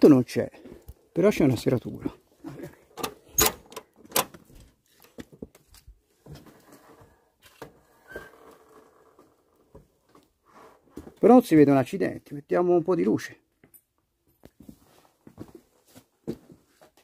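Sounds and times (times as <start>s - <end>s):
door lock clicks: 3.0s - 4.3s.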